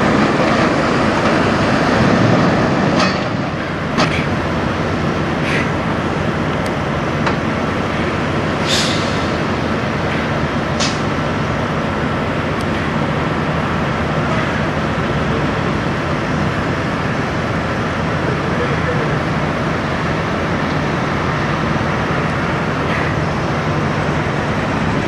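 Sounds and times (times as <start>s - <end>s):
diesel truck engine running: 0.0s - 25.0s
short air hisses: 8.6s - 9.3s.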